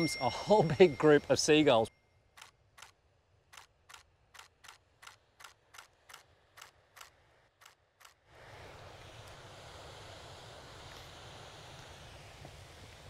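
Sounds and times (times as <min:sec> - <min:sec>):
camera shutter clicking: 0:02.4 - 0:08.2.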